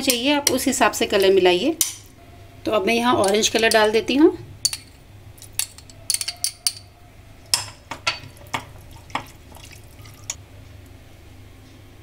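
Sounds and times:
spoon clinking against glass bowls: 3.2 - 4.0, 4.6 - 9.4.

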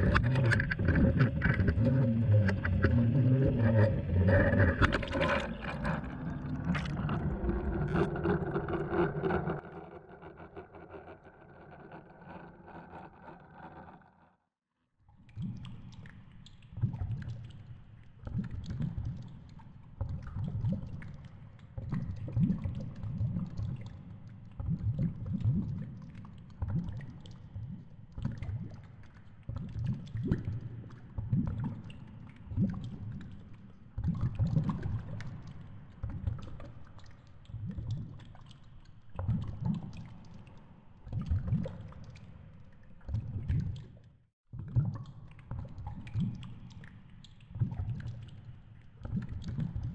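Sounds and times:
underwater rumble of moving water: 0.0 - 14.2.

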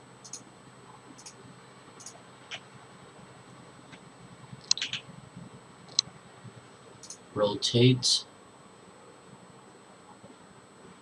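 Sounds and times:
faint room noise: 0.0 - 11.0
computer mouse clicks: 0.2 - 0.4, 1.2 - 1.4, 4.6 - 5.0, 7.0 - 7.2.

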